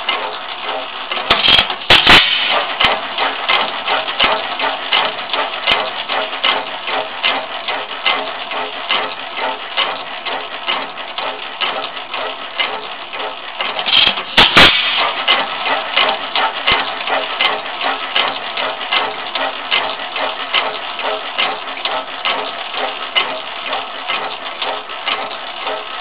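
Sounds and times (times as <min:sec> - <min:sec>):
stationary gas engine clattering: 0:00.0 - 0:26.0
loud mechanical snaps: 0:00.1 - 0:09.1, 0:09.8 - 0:17.6.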